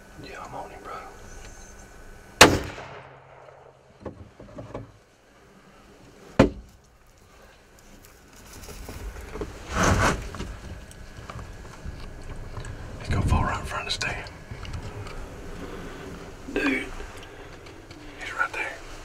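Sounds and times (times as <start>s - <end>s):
sharp loud crack: 2.4s - 3.9s.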